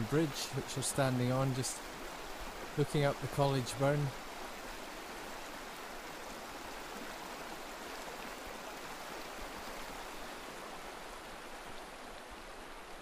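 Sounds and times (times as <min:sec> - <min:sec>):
stream flowing over stones: 0:00.0 - 0:13.0.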